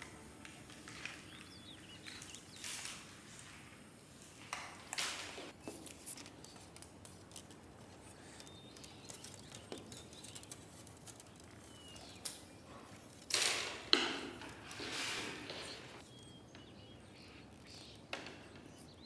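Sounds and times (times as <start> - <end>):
faint clicks and taps: 5.6 - 12.5
rustling scrape: 14.6 - 16.0.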